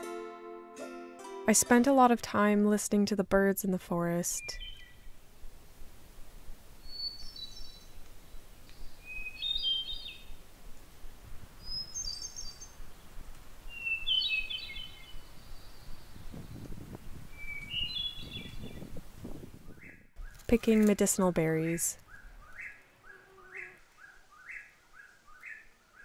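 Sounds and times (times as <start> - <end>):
wood thrush singing: 4.3 - 5.1, 6.8 - 10.4, 11.6 - 13.1, 13.7 - 19.0, 19.6 - 26.0.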